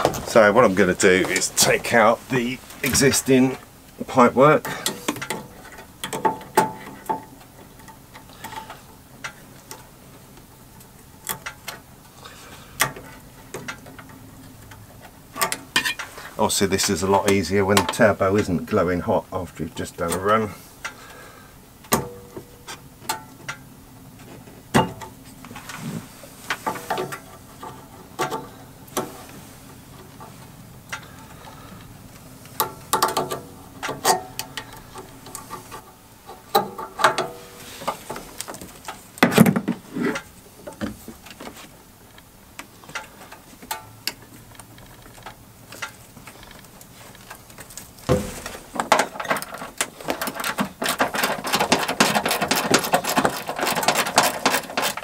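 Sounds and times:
hand tools clicking and clinking: 0:00.0 - 0:09.9, 0:12.7 - 0:18.5, 0:30.0 - 0:55.0
faint steady hum: 0:00.0 - 0:55.0.

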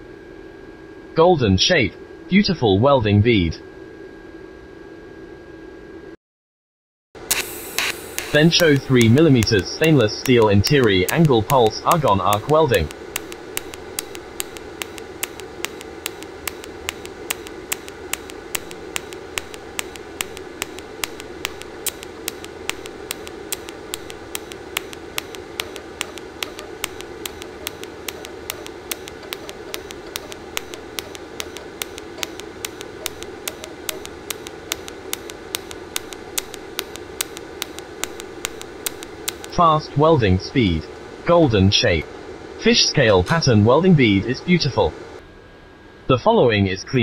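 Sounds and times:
welding arc hissing: 0:07.2 - 0:39.8
sharp ticks of welding pulses: 0:07.2 - 0:41.6.

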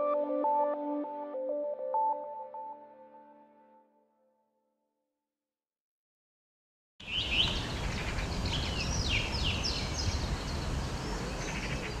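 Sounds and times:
small birds singing: 0:07.0 - 0:12.0.

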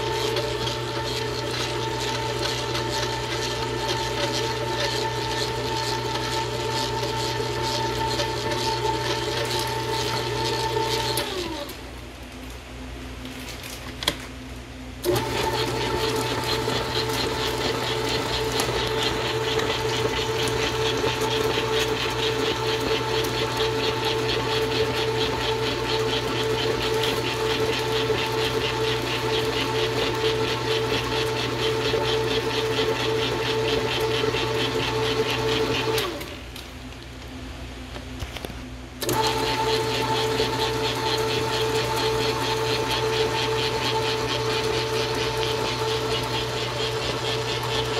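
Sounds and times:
stand mixer motor whining: 0:00.0 - 0:11.9, 0:15.0 - 0:36.6, 0:38.3 - 0:47.9
beater rattling in dough: 0:39.8 - 0:47.9.

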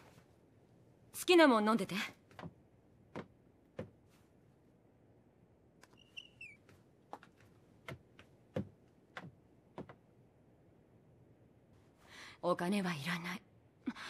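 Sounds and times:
brief high squeak: 0:05.9 - 0:06.6.

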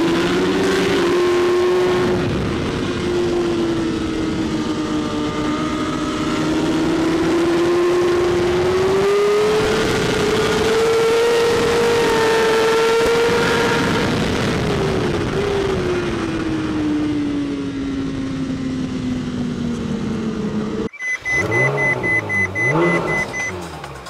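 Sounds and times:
motorcycle engine at high revs: 0:00.0 - 0:24.0
music with electronic beeps: 0:20.9 - 0:24.0.

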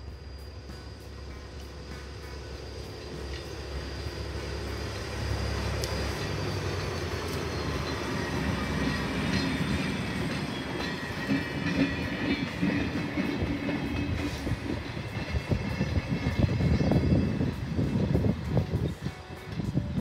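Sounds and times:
railcar engine rumbling: 0:00.0 - 0:20.0
wheels clicking over rail joints: 0:04.7 - 0:19.9.

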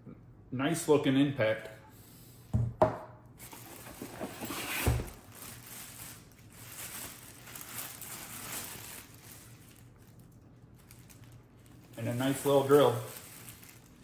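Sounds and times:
plastic bags crinkling: 0:03.4 - 0:14.0.

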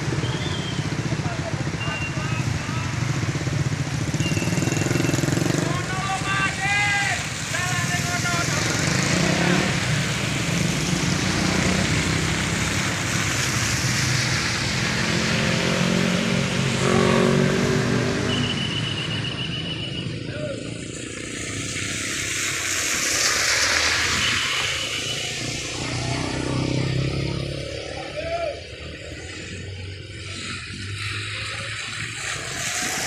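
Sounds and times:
tyres hissing on wet road: 0:00.0 - 0:33.0
rain hissing: 0:05.8 - 0:16.9, 0:20.7 - 0:27.1, 0:28.7 - 0:33.0.

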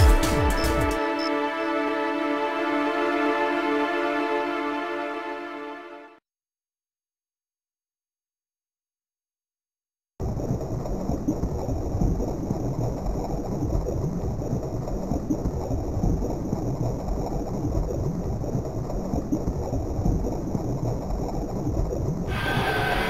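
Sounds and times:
low rumbling electronic noise: 0:10.2 - 0:23.0.

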